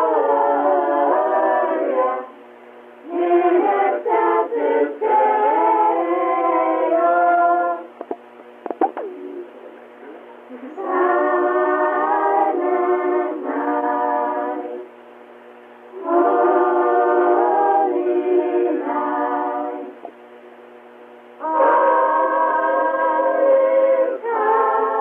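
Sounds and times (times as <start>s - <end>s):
children singing a carol: 0.0s - 2.3s, 3.1s - 7.8s, 10.6s - 14.8s, 16.0s - 20.0s, 21.4s - 25.0s.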